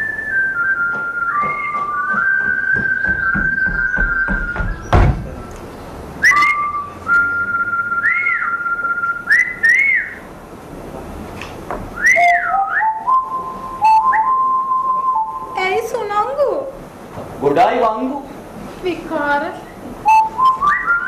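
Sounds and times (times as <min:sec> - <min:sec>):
person whistling: 0:00.0 - 0:04.9, 0:06.2 - 0:10.2, 0:12.0 - 0:15.6, 0:20.0 - 0:21.0
sharp knock: 0:00.9 - 0:05.4.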